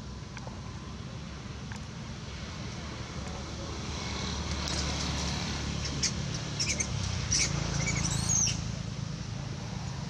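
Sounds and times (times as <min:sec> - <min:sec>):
animal squeaks and chirps: 0:05.8 - 0:08.6.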